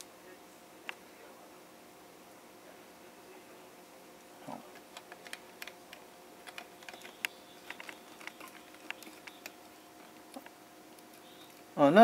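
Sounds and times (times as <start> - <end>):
small clicks of wire handling: 4.7 - 11.7.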